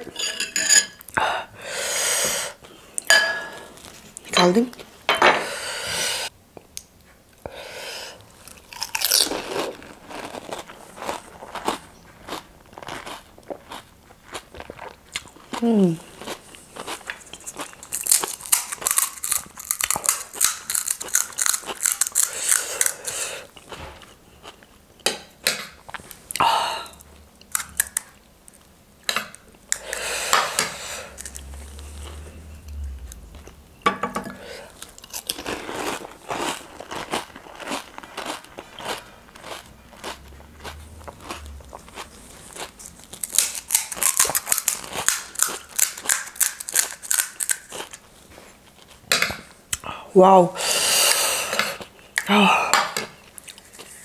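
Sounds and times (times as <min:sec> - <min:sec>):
chewing: 0:08.2 - 0:24.8, 0:34.6 - 0:48.1
crisp shells cracking and crunching: 0:08.4 - 0:15.4, 0:16.2 - 0:23.2, 0:34.8 - 0:48.0.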